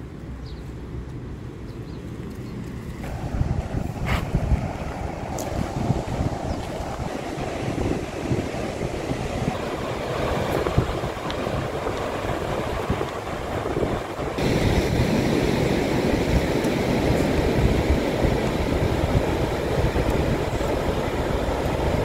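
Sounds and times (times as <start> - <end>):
wind buffeting microphone: 0.0 - 22.0
surf breaking on beach: 3.0 - 22.0.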